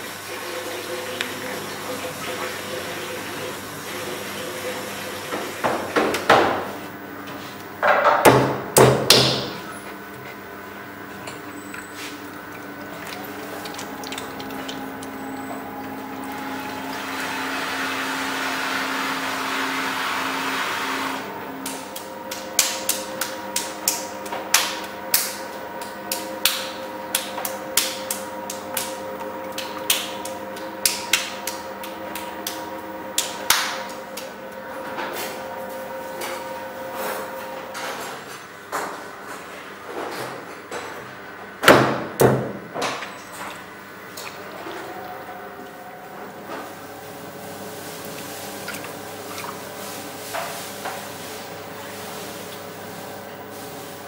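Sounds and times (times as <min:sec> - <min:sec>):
potter's wheel humming: 0:00.0 - 0:38.3, 0:42.2 - 0:54.0
hands working wet clay: 0:11.1 - 0:18.6, 0:47.6 - 0:52.7.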